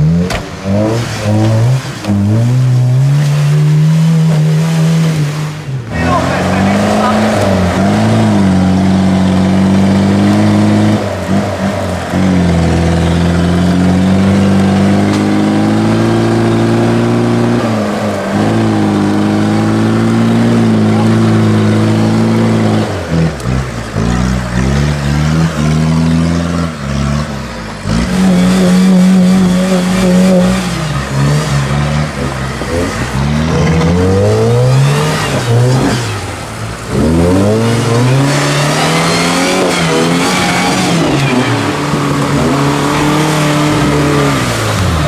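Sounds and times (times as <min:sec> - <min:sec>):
suv engines revving: 0:00.0 - 0:45.0.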